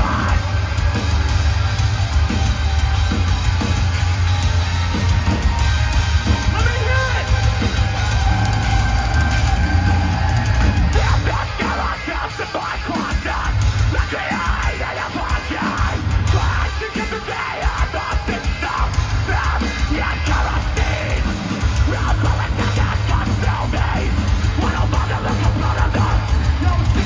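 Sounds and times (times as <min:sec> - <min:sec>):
bass guitar: 0:00.0 - 0:27.0
distorted heavy guitars: 0:00.0 - 0:27.0
drums played loud: 0:00.0 - 0:27.0
vocalist screaming: 0:06.5 - 0:27.0.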